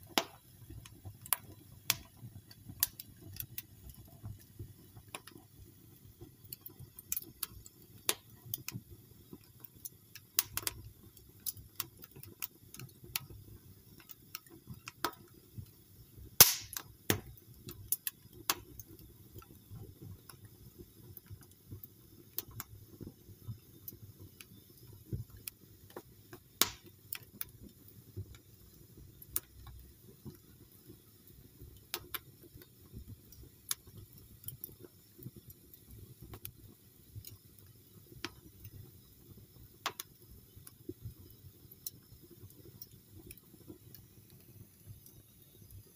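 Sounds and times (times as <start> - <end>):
sharp fire pops: 0.0 - 4.4, 10.3 - 10.8, 16.4 - 18.8, 24.5 - 27.6
wood logs crackling in fireplace: 0.0 - 45.9.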